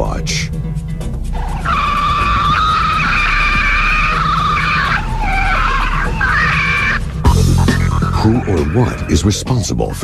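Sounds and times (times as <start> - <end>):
high-pitched squealing scream: 1.4 - 7.2.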